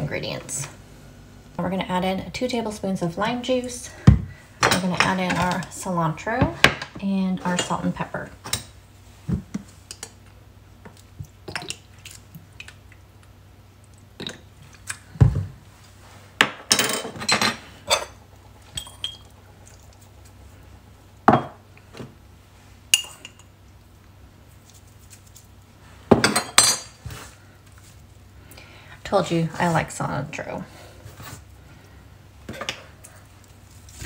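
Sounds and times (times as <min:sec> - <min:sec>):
spoons clinking against glass bowl: 0:18.7 - 0:19.3.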